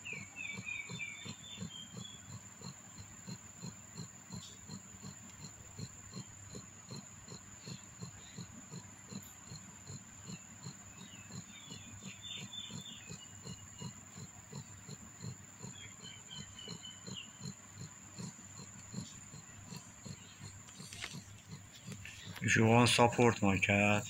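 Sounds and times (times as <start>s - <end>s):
kittens suckling clicks: 18.2s - 22.5s.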